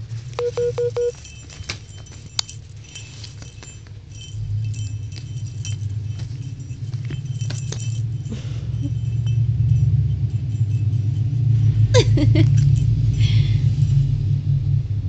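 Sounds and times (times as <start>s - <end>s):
small bell jingling: 0.0s - 14.0s
low steady rumble: 0.0s - 15.0s
short pitched tones: 0.4s - 1.1s.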